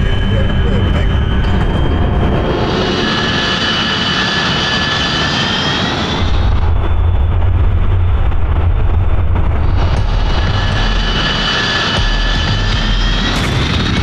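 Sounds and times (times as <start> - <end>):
deep jet engine rumble: 0.0 - 14.0
jet engine whine: 0.0 - 14.0.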